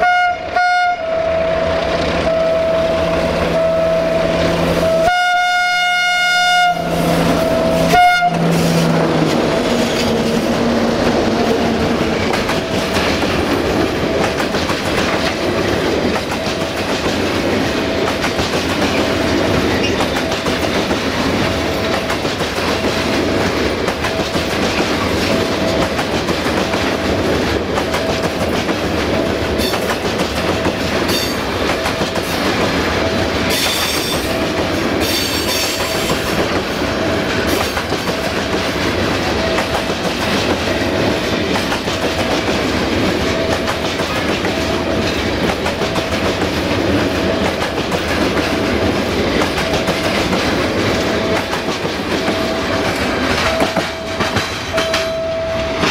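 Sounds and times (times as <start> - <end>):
train wheels clattering over rails: 7.0 - 55.2
wheel squeals: 19.7 - 20.3
faint beep: 53.4 - 55.9.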